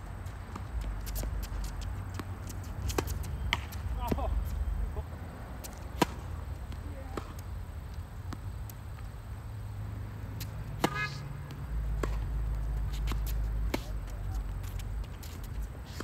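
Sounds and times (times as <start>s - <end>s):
tennis ball bouncing: 0.2s - 9.2s, 9.9s - 16.0s
tennis racket hitting ball: 0.5s - 4.6s, 5.6s - 7.5s, 10.2s - 16.0s.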